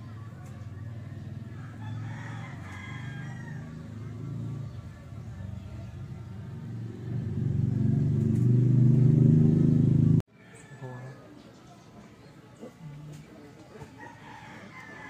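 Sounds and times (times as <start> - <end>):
low engine rumble: 0.0 - 10.3
rooster crowing: 1.4 - 4.3, 14.0 - 15.0.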